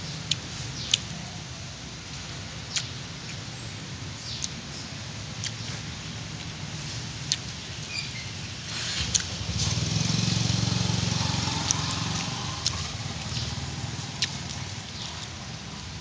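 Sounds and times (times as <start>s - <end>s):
vehicle engine hum: 3.9s - 16.0s.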